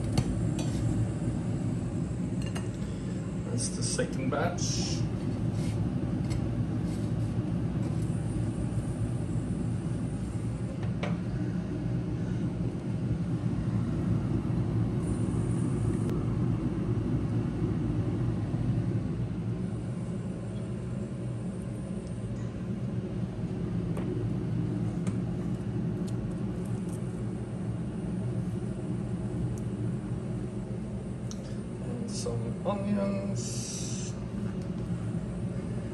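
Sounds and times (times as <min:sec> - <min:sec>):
low rumble of running machine: 0:00.0 - 0:35.9.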